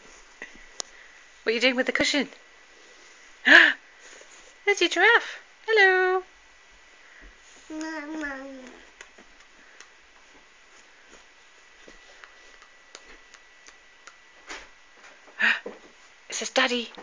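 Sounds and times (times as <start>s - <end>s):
baby cooing: 7.7s - 8.9s.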